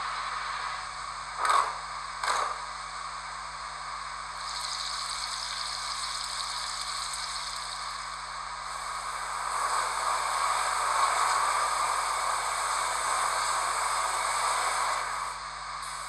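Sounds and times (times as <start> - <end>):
frying sizzle: 4.4 - 8.1
model locomotive hiss: 4.4 - 16.0.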